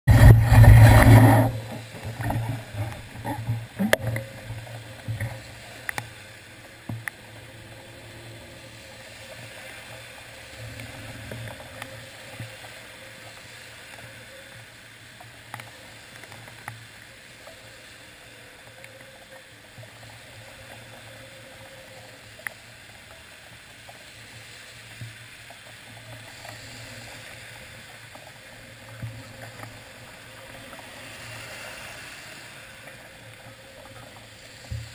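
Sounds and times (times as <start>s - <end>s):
loud burst of noise: 0.1s - 2.6s
tyres hissing on wet road: 0.1s - 34.9s.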